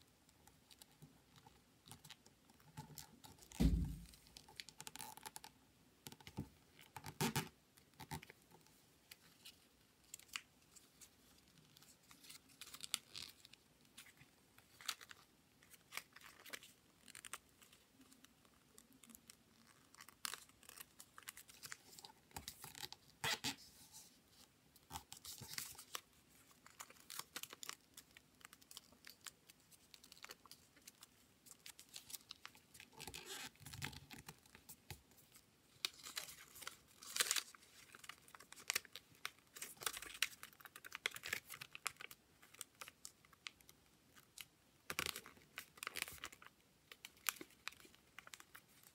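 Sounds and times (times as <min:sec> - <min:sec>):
paper rustling and crinkling: 0:24.9 - 0:43.6.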